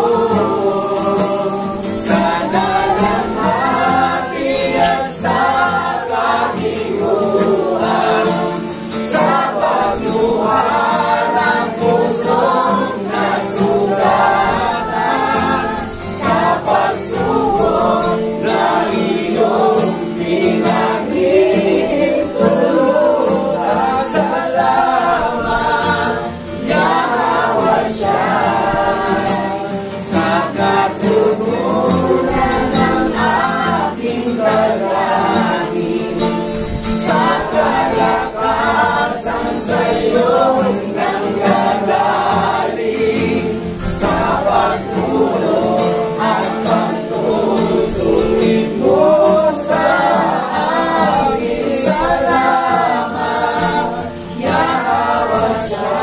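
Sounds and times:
congregation singing: 0.0 - 56.0.

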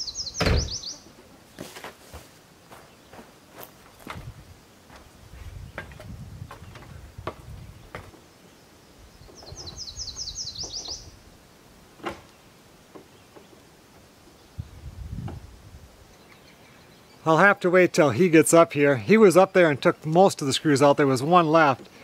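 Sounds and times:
bird trill: 0.0 - 1.1, 9.2 - 11.1.

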